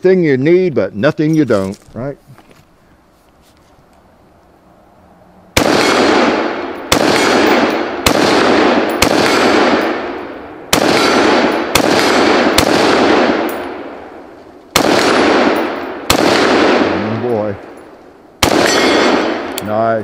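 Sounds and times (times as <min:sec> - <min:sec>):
rifle shots with echo: 0:05.6 - 0:19.7
bullets pinging on steel plates: 0:18.5 - 0:19.2.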